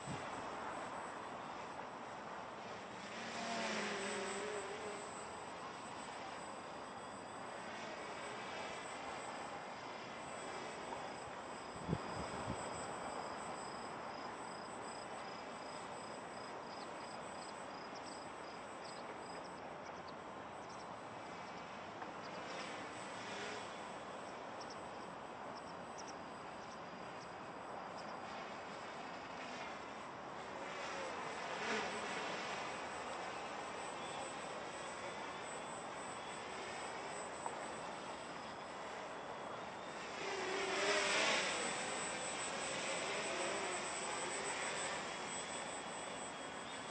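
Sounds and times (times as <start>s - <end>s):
quadcopter propellers buzzing: 0.0s - 13.7s, 22.2s - 24.4s, 28.2s - 46.9s.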